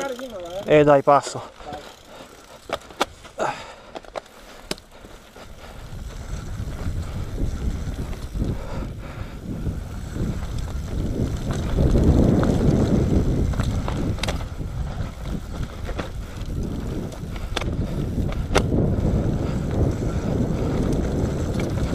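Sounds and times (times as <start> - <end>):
mountain bike tyre and frame noise: 0.0 - 21.9
wind buffeting microphone: 5.3 - 21.9.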